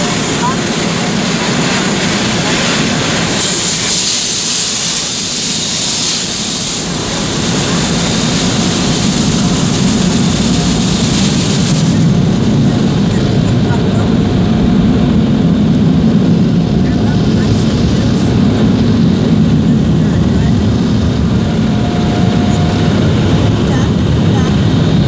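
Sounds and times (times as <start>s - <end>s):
water jets spraying on car: 0.0s - 13.9s
car wash machinery rumble: 0.0s - 25.0s.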